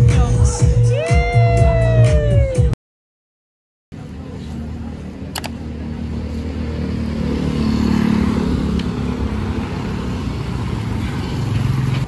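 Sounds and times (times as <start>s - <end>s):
road noise: 3.9s - 12.0s
vehicle engine running: 3.9s - 12.0s.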